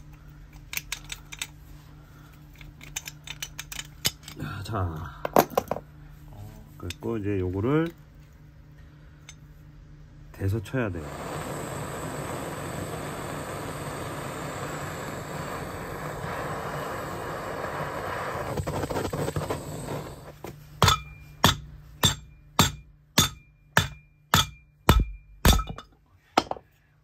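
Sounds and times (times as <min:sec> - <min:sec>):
gas torch hissing: 0:10.6 - 0:20.5
hammer blows with metallic ring: 0:20.8 - 0:26.6.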